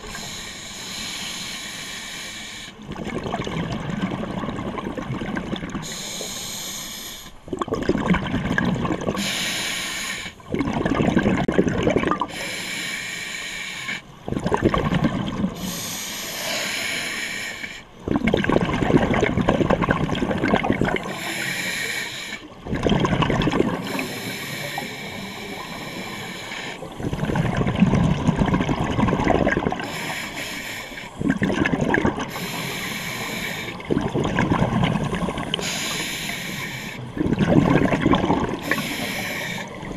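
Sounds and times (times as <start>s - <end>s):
diver breathing through regulator: 0.0s - 2.8s, 5.8s - 7.4s, 9.2s - 10.4s, 12.3s - 14.1s, 15.6s - 17.9s, 21.0s - 22.5s, 23.8s - 27.4s, 29.8s - 31.2s, 32.3s - 33.9s, 34.9s - 37.2s, 38.6s - 39.9s
bubbling exhale: 13.8s - 39.9s.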